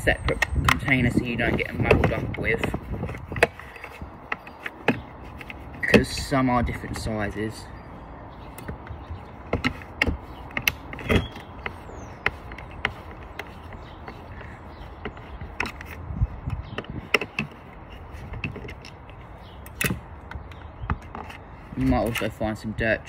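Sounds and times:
screwdriver and plastic parts clicking: 0.2 - 7.1, 9.5 - 22.4.

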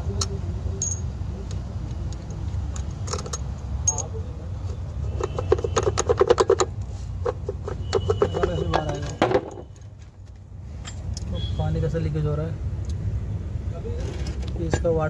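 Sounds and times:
steel bolts clinking in hand: 0.2 - 4.2.

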